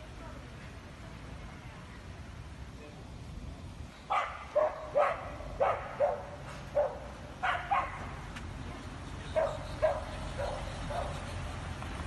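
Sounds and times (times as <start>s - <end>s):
dog yelping and barking: 4.1s - 8.1s, 9.3s - 11.2s.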